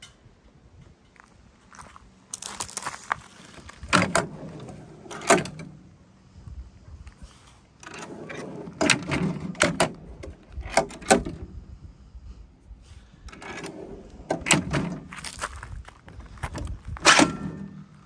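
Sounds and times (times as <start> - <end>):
metal drawer clacking and rattling: 3.8 - 5.9, 7.8 - 11.5, 13.3 - 15.2, 16.6 - 18.0.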